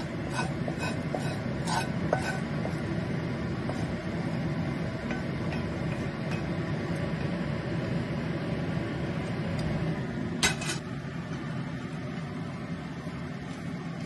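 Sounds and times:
spatula scraping a pan: 0:00.0 - 0:03.0
range hood fan drone: 0:00.0 - 0:14.0.

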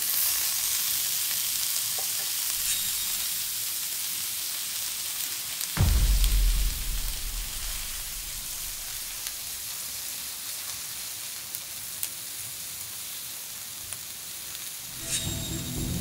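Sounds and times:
meat sizzling in a pan: 0:00.0 - 0:05.8, 0:09.0 - 0:14.9.

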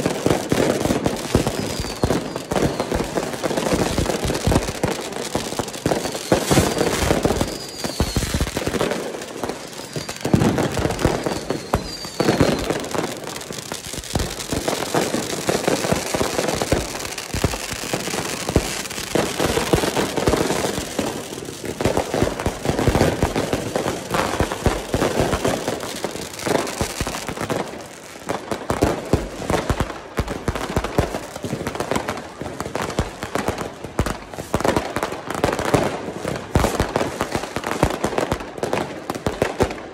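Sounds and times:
firecrackers banging and crackling: 0:00.0 - 0:39.9
firework whistles: 0:00.9 - 0:04.9, 0:05.6 - 0:27.8.

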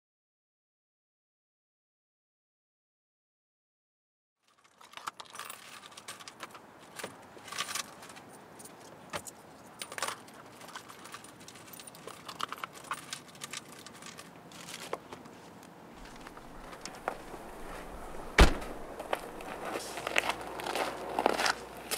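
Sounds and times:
metal items clinking: 0:04.4 - 0:15.1, 0:16.0 - 0:21.5
keys jangling: 0:04.5 - 0:14.9, 0:16.0 - 0:19.7.

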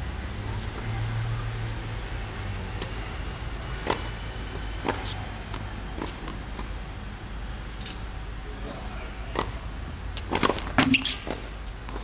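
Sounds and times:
tennis ball bouncing on hard court: 0:03.8 - 0:04.1, 0:04.8 - 0:05.2, 0:10.2 - 0:12.0.

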